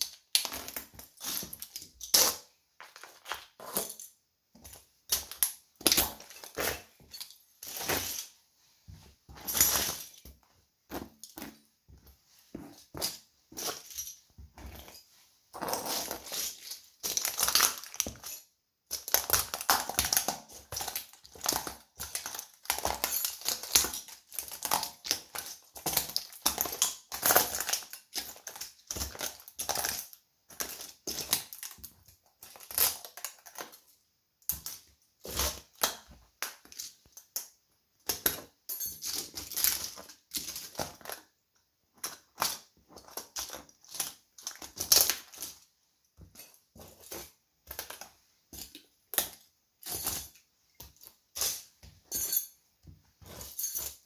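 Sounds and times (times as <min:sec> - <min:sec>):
plastic toy pieces crunching underfoot: 0:15.6 - 0:33.8, 0:38.0 - 0:41.3, 0:42.0 - 0:51.7.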